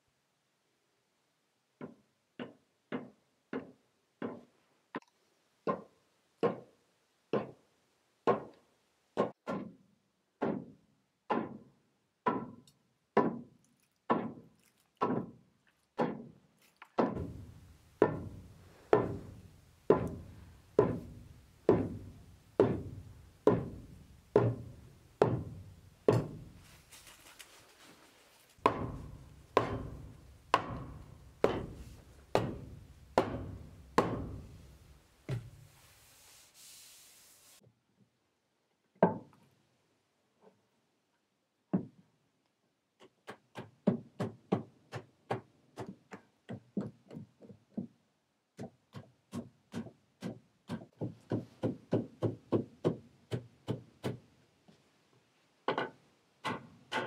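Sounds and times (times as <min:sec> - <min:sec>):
wooden mallet striking floorboards: 0:01.8 - 0:04.5, 0:05.7 - 0:06.7, 0:07.3 - 0:07.6, 0:10.4 - 0:12.6, 0:17.0 - 0:26.6, 0:28.6 - 0:35.6.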